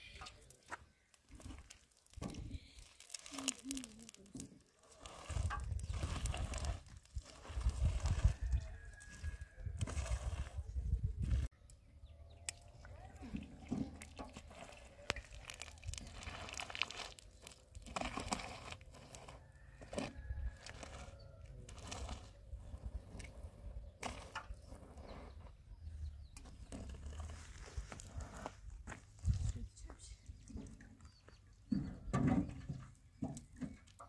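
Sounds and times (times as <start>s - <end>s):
plastic sheeting crinkling: 1.0s - 7.9s, 14.5s - 18.8s
brush scraping plastic sheeting: 1.3s - 10.7s, 14.3s - 22.4s.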